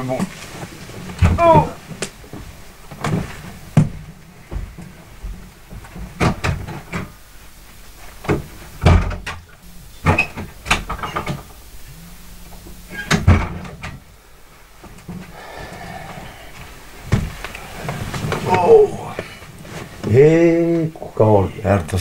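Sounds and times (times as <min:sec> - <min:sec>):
knocks and clunks: 0:01.1 - 0:07.2, 0:08.2 - 0:11.7.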